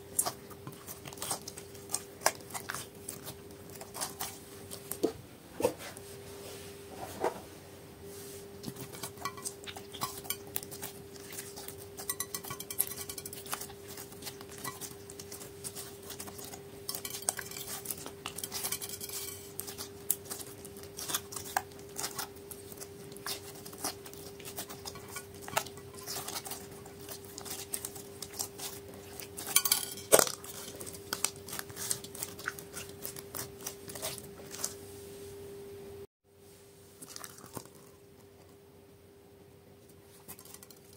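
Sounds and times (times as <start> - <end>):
faint steady hum: 0.0 - 40.9
beaded slime clicking and scraping: 9.2 - 34.7.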